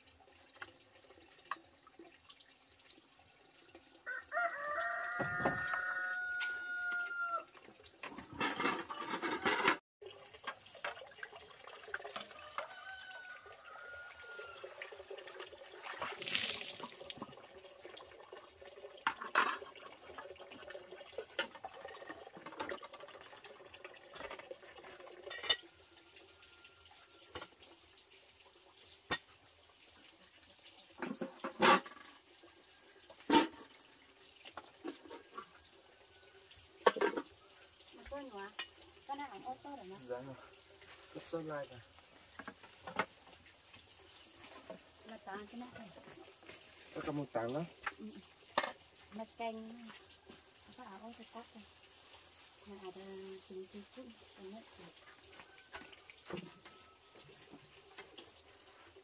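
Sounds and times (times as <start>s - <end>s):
water splashing and trickling: 0.0s - 59.0s
rooster crowing: 4.0s - 7.5s, 12.3s - 14.8s.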